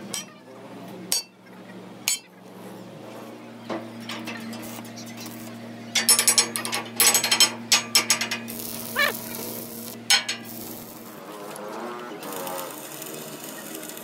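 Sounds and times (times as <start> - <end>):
low electrical hum: 0.0 - 14.0
metal strikes ringing: 1.1 - 1.3, 2.1 - 2.3.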